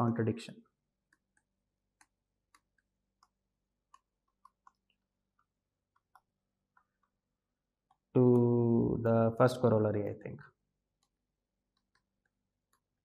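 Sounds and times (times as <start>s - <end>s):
stylus tapping on tablet screen: 1.0s - 7.2s, 10.9s - 13.0s.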